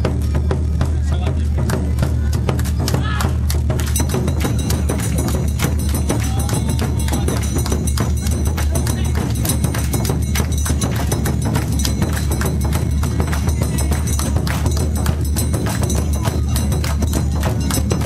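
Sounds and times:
crowd noise: 0.0 - 18.0
taiko drums beating: 0.0 - 18.0
clanging hand gong: 3.9 - 18.0.

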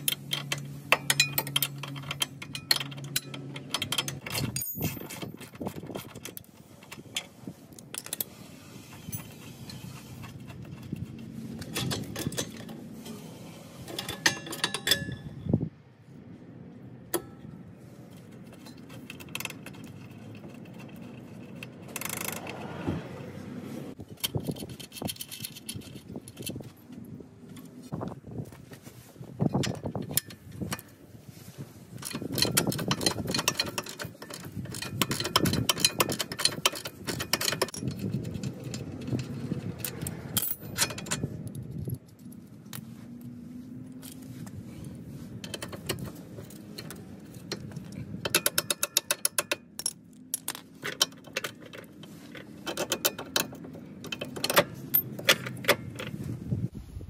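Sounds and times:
metal tools clinking: 0.0 - 8.3, 9.0 - 13.2, 13.9 - 15.4, 31.9 - 42.8.

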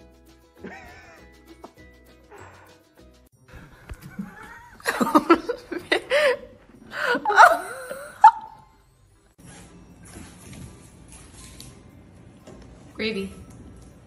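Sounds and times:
faint background music: 0.0 - 14.0
person laughing hard: 0.6 - 1.4, 4.0 - 8.6.

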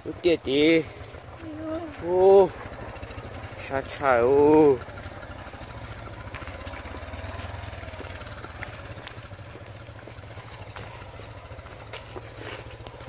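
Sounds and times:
small motorcycle engine idling: 0.0 - 13.0.

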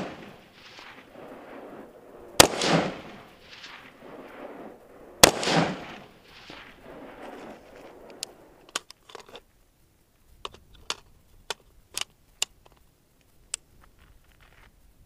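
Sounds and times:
rifle shot echoing: 0.0 - 8.8
small sharp clicks: 8.0 - 9.5.

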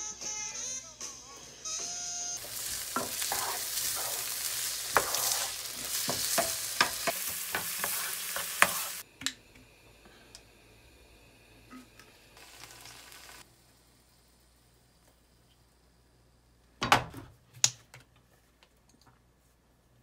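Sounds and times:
onion and bacon sizzling in pan: 1.7 - 9.1, 9.7 - 15.0
wooden spatula scraping a pan: 2.4 - 9.0.

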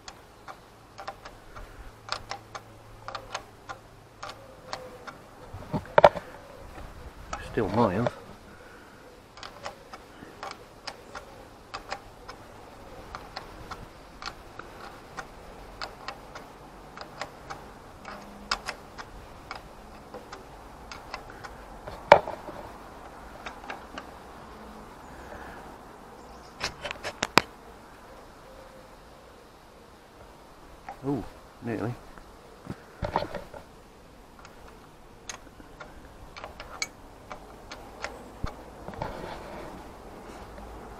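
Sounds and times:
spanner clicking on metal nuts: 0.0 - 5.2, 9.4 - 12.4, 13.0 - 22.2, 34.4 - 39.0.

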